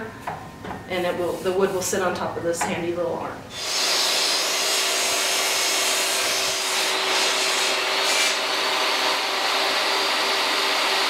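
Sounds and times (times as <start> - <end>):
table saw ripping plywood: 3.5 - 8.5.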